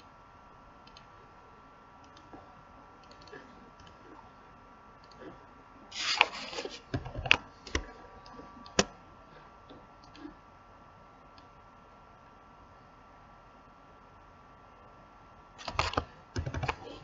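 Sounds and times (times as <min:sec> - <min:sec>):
faint electrical hum: 0:00.0 - 0:17.0
mouse and keyboard clicks: 0:03.0 - 0:04.2, 0:15.6 - 0:17.0.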